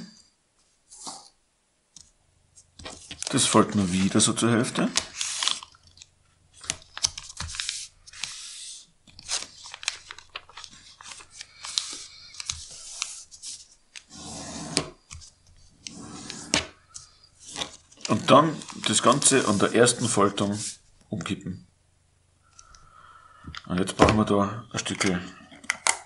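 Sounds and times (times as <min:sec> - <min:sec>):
paper rustling and sliding: 0:02.7 - 0:05.7, 0:06.5 - 0:20.8.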